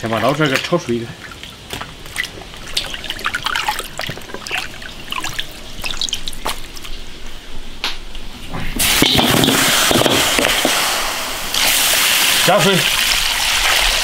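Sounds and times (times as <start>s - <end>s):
small splashes: 0.0s - 7.0s
water trickling and dripping: 0.0s - 7.1s.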